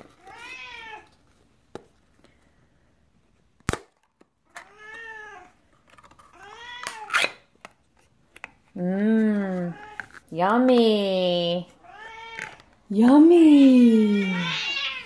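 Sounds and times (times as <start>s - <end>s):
cat meowing: 14.0s - 15.0s.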